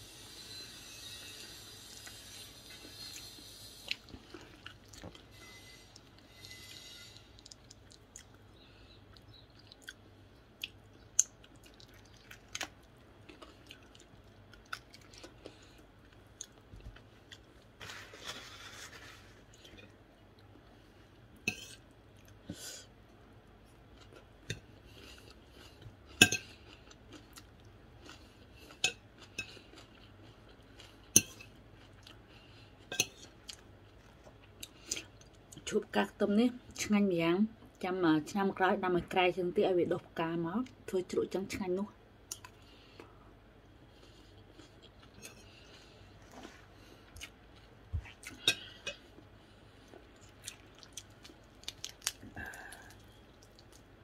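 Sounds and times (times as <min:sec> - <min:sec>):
chewing and mouth sounds: 0:02.8 - 0:05.3, 0:07.3 - 0:17.7, 0:23.6 - 0:35.7, 0:43.9 - 0:54.0
paper napkin rustling: 0:17.8 - 0:19.5.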